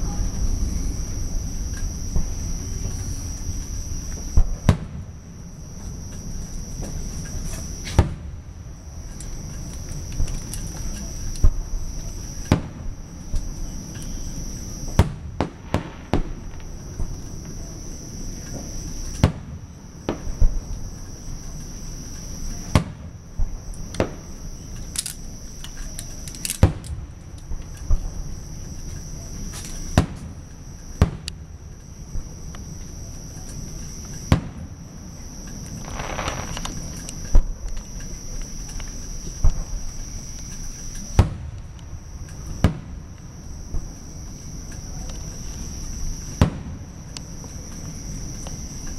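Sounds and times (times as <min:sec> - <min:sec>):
fireworks bursting with sharp bangs: 0:00.0 - 0:05.8, 0:06.8 - 0:08.6, 0:11.4 - 0:13.6, 0:14.8 - 0:17.6, 0:18.5 - 0:20.7, 0:22.6 - 0:24.6, 0:26.6 - 0:28.3, 0:29.5 - 0:30.4, 0:31.0 - 0:31.5, 0:34.2 - 0:34.8, 0:35.6 - 0:37.8, 0:41.1 - 0:41.7, 0:42.5 - 0:43.1, 0:46.3 - 0:46.9
insects chirring: 0:00.0 - 0:48.9.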